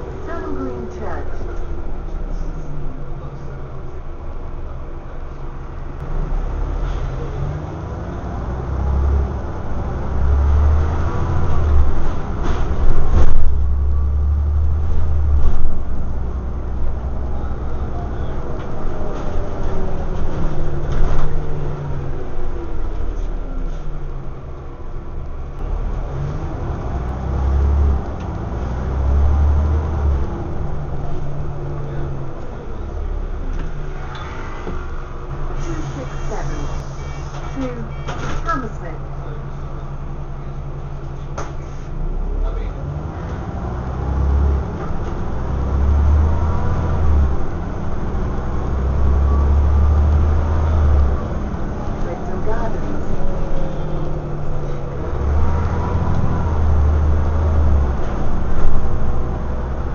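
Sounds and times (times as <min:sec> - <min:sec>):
bus diesel engine drone: 0:00.0 - 0:59.9
road noise: 0:00.0 - 0:59.9.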